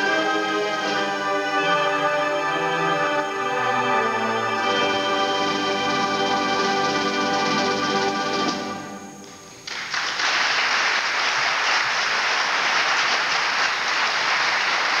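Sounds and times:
audience applause: 0:09.5 - 0:15.0.

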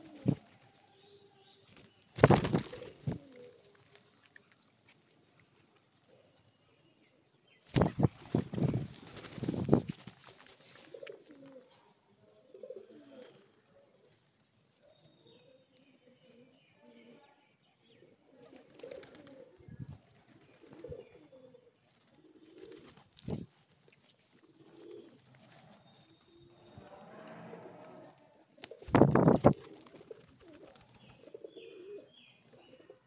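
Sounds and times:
pigeons cooing: 0:00.0 - 0:00.7, 0:02.2 - 0:03.8, 0:10.7 - 0:14.1, 0:17.9 - 0:19.8, 0:20.4 - 0:23.4, 0:24.4 - 0:33.0
flurry of wingbeats: 0:01.6 - 0:04.2, 0:07.7 - 0:11.6, 0:18.4 - 0:21.2, 0:21.9 - 0:28.0, 0:28.6 - 0:32.0.

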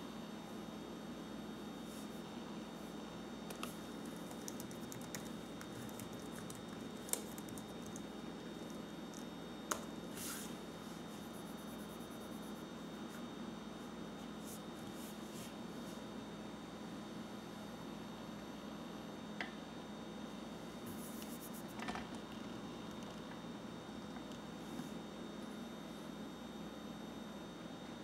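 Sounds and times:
laptop keys clicking: 0:03.5 - 0:09.8.

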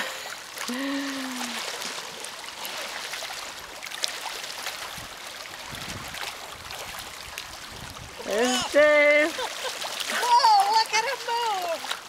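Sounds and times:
person humming: 0:00.0 - 0:01.6
small waves lapping: 0:00.0 - 0:12.0.

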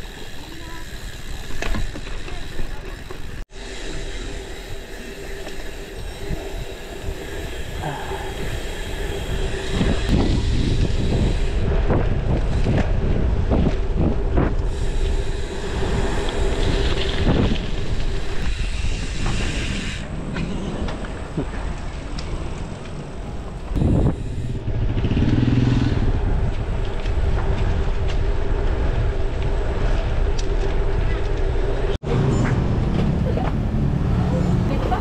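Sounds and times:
wind buffeting microphone: 0:05.3 - 0:32.0.

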